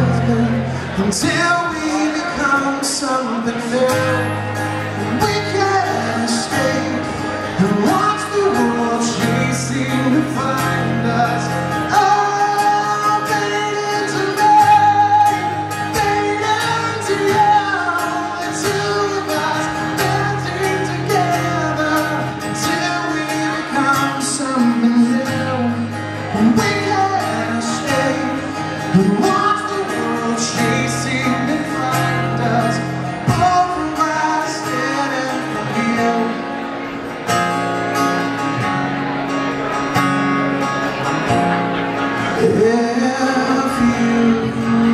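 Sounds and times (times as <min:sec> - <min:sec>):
man singing into a microphone: 0:00.0 - 0:37.0, 0:42.2 - 0:44.9
acoustic guitar strumming: 0:00.0 - 0:44.9.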